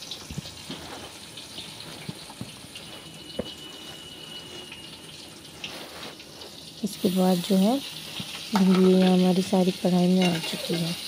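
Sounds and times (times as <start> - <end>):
oil sizzling with pops: 0.0 - 11.0
faint high whine: 2.9 - 5.6.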